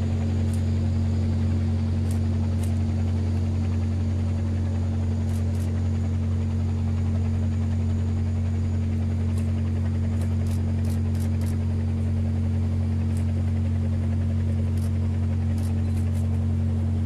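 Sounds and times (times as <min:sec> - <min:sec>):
ship engines humming: 0:00.0 - 0:17.0
faint high ticks: 0:02.0 - 0:02.8.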